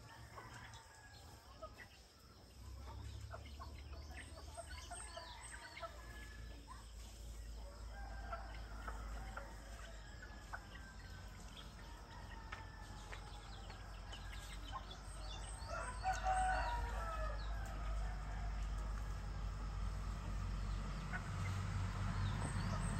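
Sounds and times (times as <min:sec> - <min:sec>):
small birds chirping: 0:00.0 - 0:22.9
rooster crowing: 0:07.6 - 0:14.3, 0:14.9 - 0:19.8.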